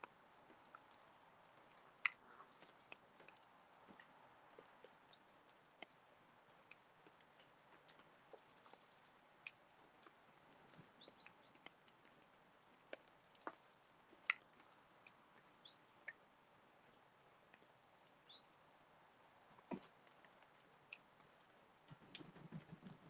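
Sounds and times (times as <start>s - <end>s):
high songbird chirps: 10.5s - 11.7s, 15.4s - 15.9s, 17.9s - 18.6s.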